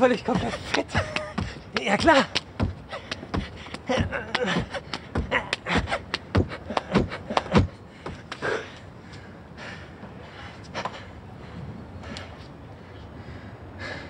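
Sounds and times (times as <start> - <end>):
men laughing: 0.0 - 7.8.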